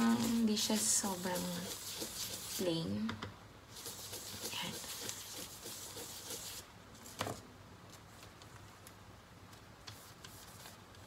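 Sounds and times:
toothbrush bristles scraping: 0:00.0 - 0:02.7, 0:03.8 - 0:06.6.

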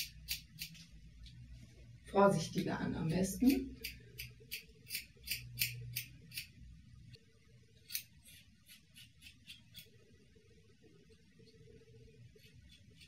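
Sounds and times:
scissors snipping hair: 0:00.0 - 0:00.9, 0:02.5 - 0:06.5, 0:07.8 - 0:09.9.

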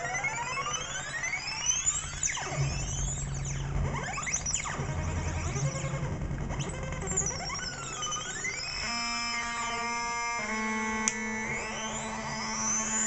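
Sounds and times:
synth oscillator pitch glides: 0:00.0 - 0:09.9
buzzy synth tone: 0:00.0 - 0:13.0.

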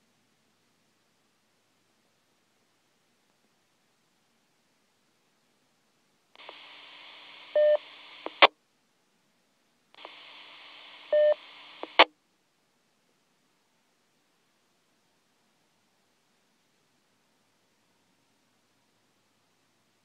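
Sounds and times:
radio squelch hiss: 0:06.4 - 0:08.5, 0:10.0 - 0:12.1
short radio beep: 0:07.5 - 0:08.4, 0:11.1 - 0:12.0.

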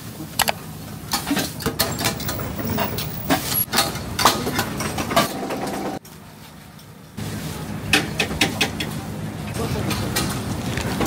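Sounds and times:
metal spatulas on griddle: 0:01.0 - 0:06.0.

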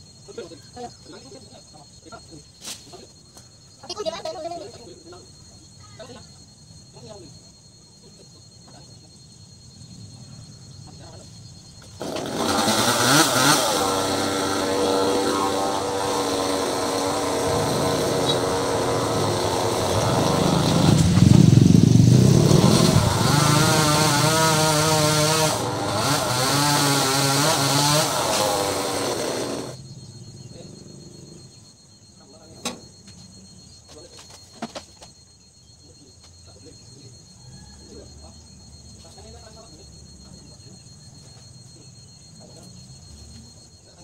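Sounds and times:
chainsaw cutting a branch: 0:11.9 - 0:29.8.

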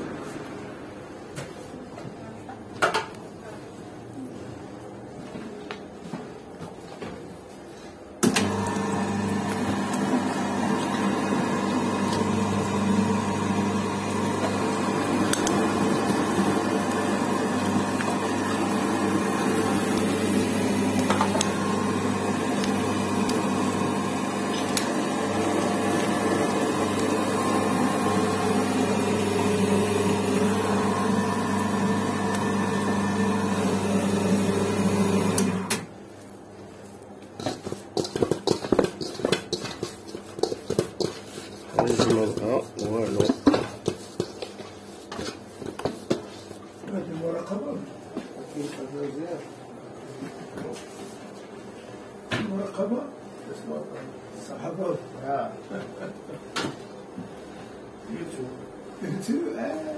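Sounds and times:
electric meat grinder motor hum: 0:08.3 - 0:35.7.

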